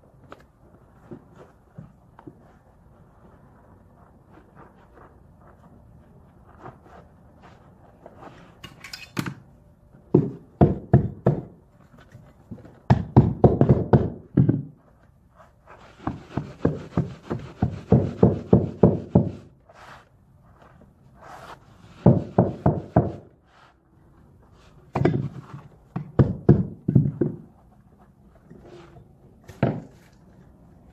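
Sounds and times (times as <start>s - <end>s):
mallet knocking carpet tile: 22.0s - 23.2s.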